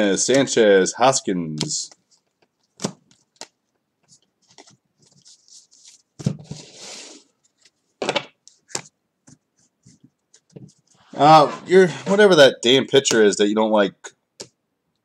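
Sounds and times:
cards shuffled on a table: 0:01.6 - 0:07.0
cards rustling slide: 0:01.6 - 0:07.7.

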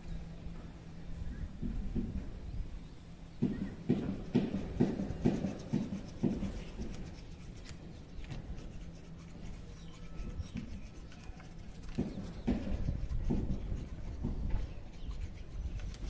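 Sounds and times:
toothbrush scrubbing teeth: 0:05.1 - 0:14.1.

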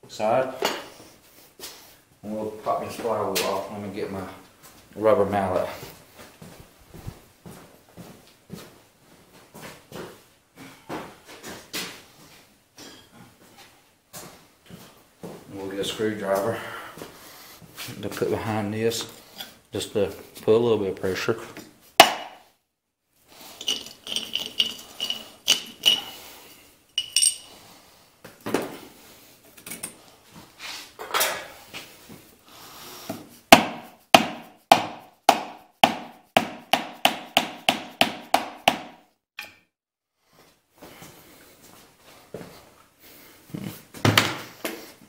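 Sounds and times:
rubber mallet striking metal: 0:22.0 - 0:22.4, 0:33.6 - 0:39.0.

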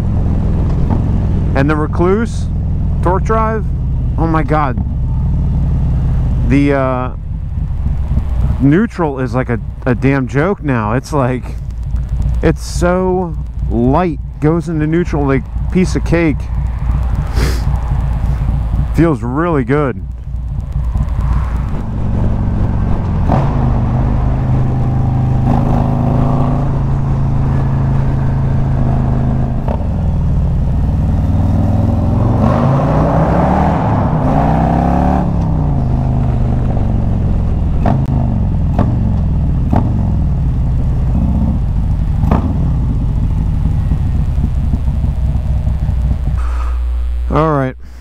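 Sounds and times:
motorcycle engine running: 0:00.0 - 0:48.0.

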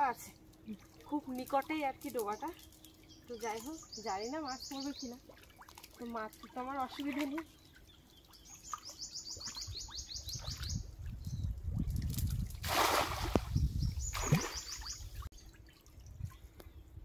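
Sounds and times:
bird chirping trill: 0:02.2 - 0:05.2, 0:07.4 - 0:11.5, 0:13.5 - 0:16.9
net splashing into water: 0:12.4 - 0:13.5, 0:14.1 - 0:14.9.

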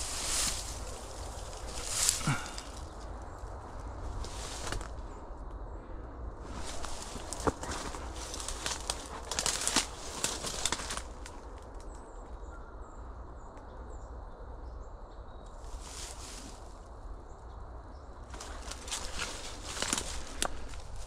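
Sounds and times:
dry leaves crackling and rustling: 0:00.0 - 0:05.1, 0:06.4 - 0:11.8, 0:15.6 - 0:16.8, 0:18.3 - 0:21.0.

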